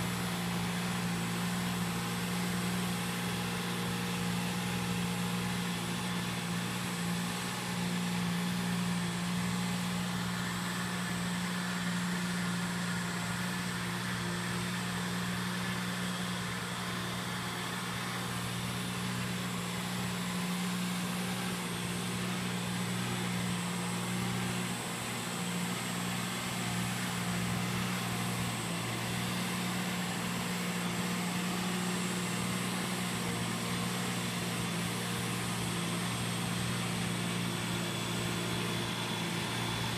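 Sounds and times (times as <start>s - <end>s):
mini tractor engine running: 0.0s - 39.9s.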